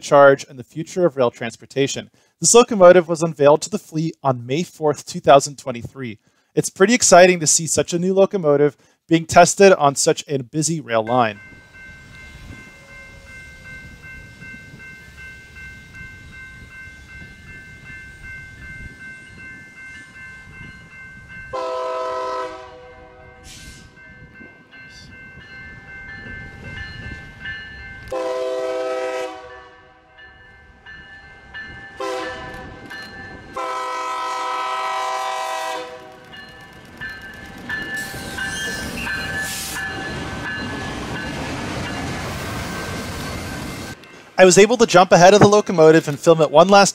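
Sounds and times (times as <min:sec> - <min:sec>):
crossing bells ringing: 0:10.8 - 0:46.9
locomotive horn: 0:21.5 - 0:24.0, 0:28.1 - 0:30.2, 0:32.0 - 0:32.9, 0:33.5 - 0:36.3.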